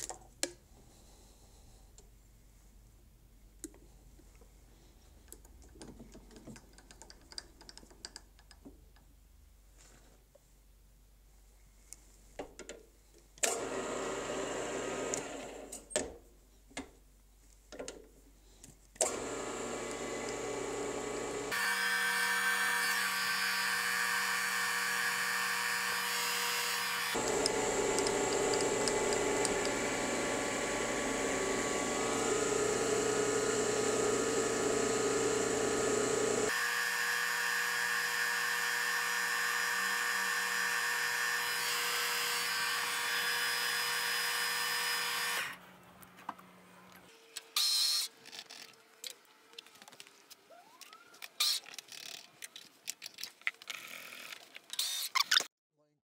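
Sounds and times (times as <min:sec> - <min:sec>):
milling machine motor whine: 0:13.6 - 0:15.7, 0:19.0 - 0:45.5.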